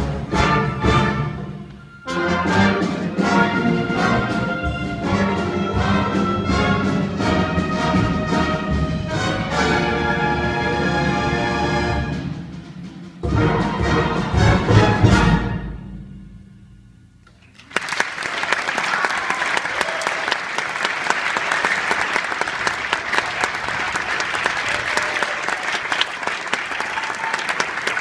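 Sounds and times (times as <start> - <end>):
audience applause: 17.4 - 28.0.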